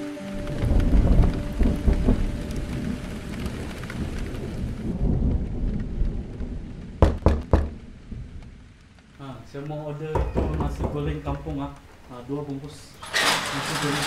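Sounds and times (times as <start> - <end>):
heavy rain: 0.0 - 14.0
low thunder rumble: 0.4 - 14.0
fist knocking on door: 7.0 - 7.8, 10.1 - 11.7.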